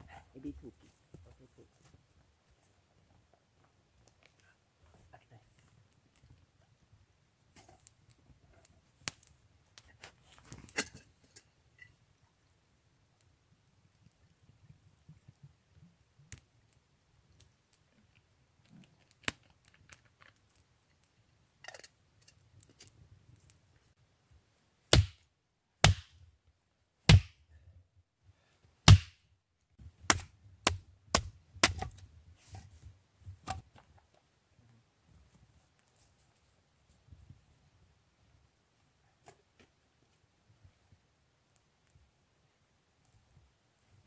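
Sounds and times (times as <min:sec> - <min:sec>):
hatchet chopping wood: 0:24.9 - 0:25.2, 0:25.8 - 0:26.1, 0:27.1 - 0:27.4, 0:28.9 - 0:29.2, 0:30.1 - 0:32.0.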